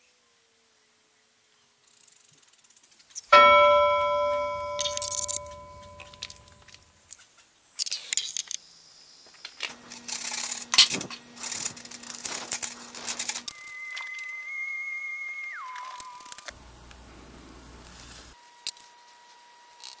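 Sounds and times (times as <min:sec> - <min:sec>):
bell-like chime: 0:03.4 - 0:06.8.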